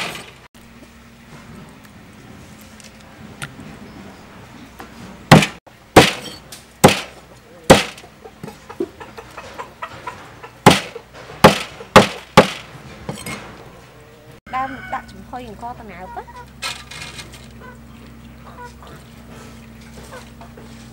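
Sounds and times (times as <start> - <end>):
cleaver chopping on wooden board: 5.3 - 6.2, 6.8 - 7.1, 7.7 - 8.0, 10.6 - 12.6.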